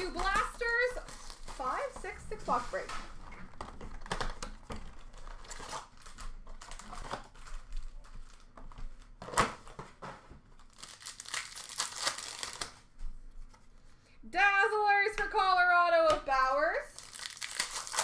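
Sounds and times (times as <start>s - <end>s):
cardboard and wrappers crinkling and ripping: 0.0s - 12.9s, 16.9s - 18.0s.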